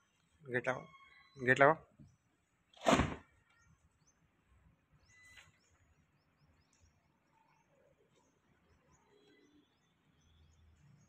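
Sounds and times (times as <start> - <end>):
faint bird chirps: 0.0 - 2.3, 4.9 - 11.0.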